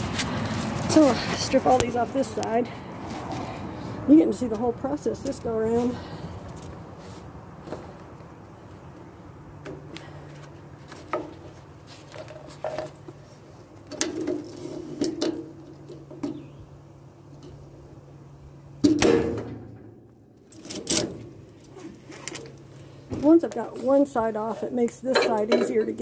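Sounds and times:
cargo straps clicking and clanking: 0:20.4 - 0:23.4.

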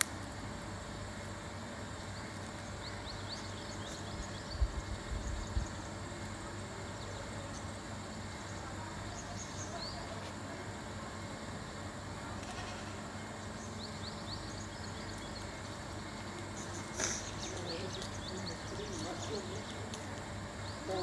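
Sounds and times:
background hiss: 0:00.0 - 0:21.0
faint bird chirps: 0:12.5 - 0:19.9.

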